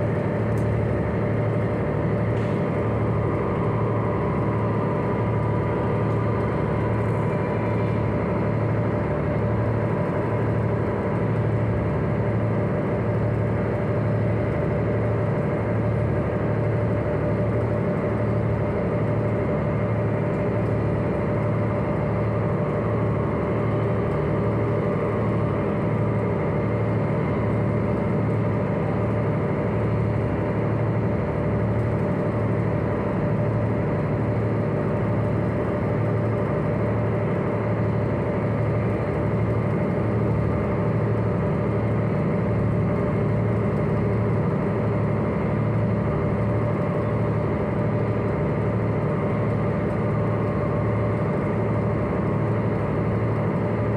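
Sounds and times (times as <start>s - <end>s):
ship engines humming: 0.0s - 53.8s.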